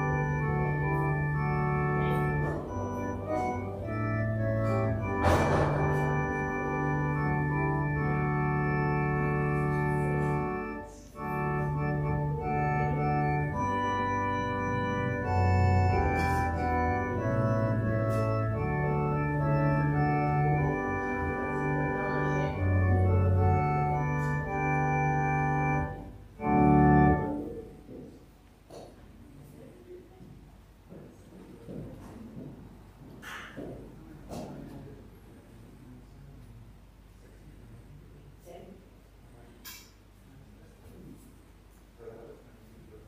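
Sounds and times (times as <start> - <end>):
organ playing sustained chords: 0.0 - 28.7.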